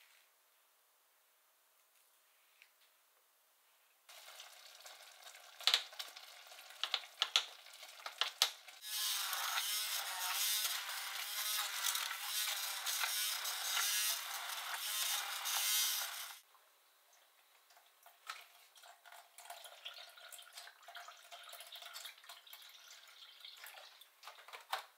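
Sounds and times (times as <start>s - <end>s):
hand blender motor in pot: 8.8s - 16.4s.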